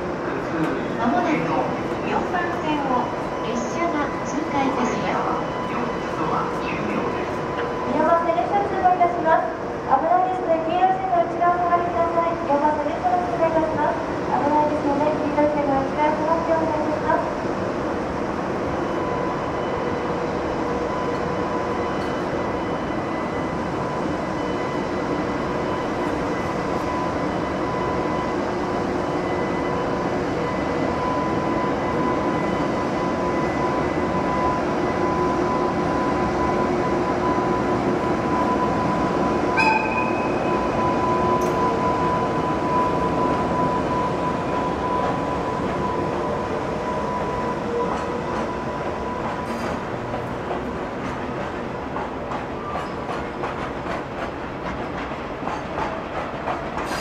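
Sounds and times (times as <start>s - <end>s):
rumble of wheels on rail: 0.0s - 57.0s
sharp clank with squeal: 39.6s - 40.4s.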